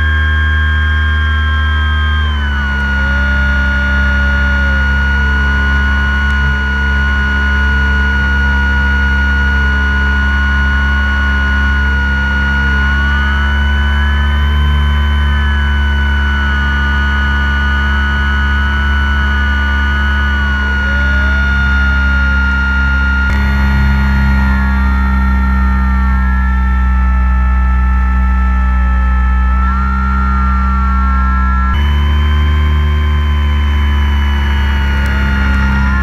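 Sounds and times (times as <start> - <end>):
wavering gliding tones: 0.0 - 8.5, 18.2 - 36.0
model airplane motor droning: 0.0 - 36.0.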